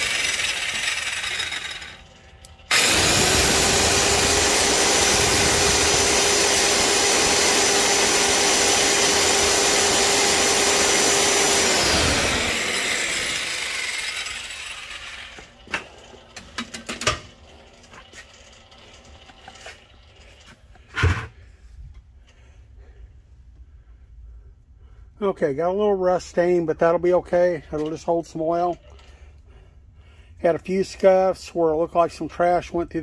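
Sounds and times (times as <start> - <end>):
belt grinding metal: 0.0 - 16.1
machine motor whine: 0.0 - 16.4.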